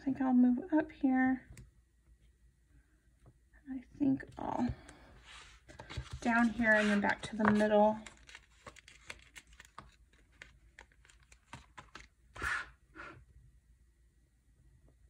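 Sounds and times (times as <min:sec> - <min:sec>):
paper rustle: 0:05.3 - 0:12.6.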